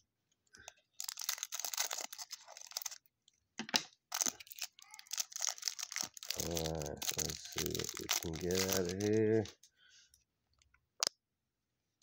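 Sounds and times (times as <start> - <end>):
plastic wrapper crinkling and tearing: 0.8 - 3.1, 4.1 - 9.7.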